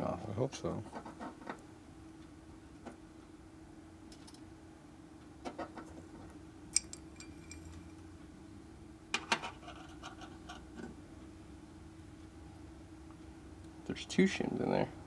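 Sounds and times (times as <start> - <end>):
faint steady hum: 0.0 - 15.0
metal parts clinking on workbench: 6.8 - 7.8.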